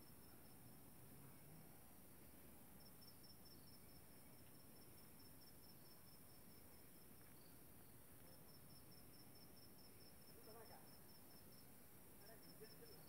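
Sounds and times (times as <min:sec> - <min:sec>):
background hiss: 0:00.0 - 0:13.0.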